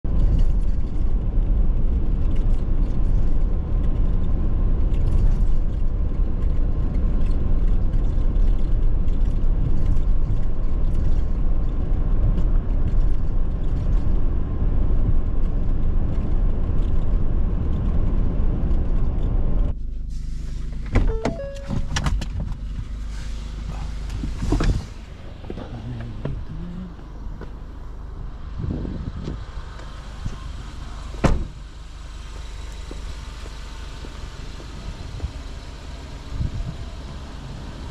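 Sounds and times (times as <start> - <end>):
car engine hum: 0.0 - 37.9
road and tyre noise: 0.0 - 37.9
short tone: 21.1 - 22.0.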